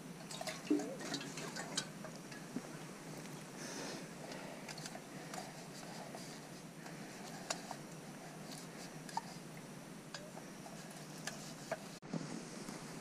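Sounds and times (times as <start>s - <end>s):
cloth wiping metal cup: 10.5s - 12.0s.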